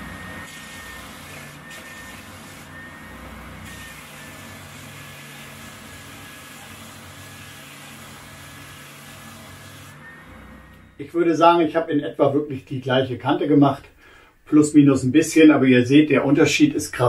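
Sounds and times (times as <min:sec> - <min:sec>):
belt sander sanding wood: 0:00.0 - 0:10.0.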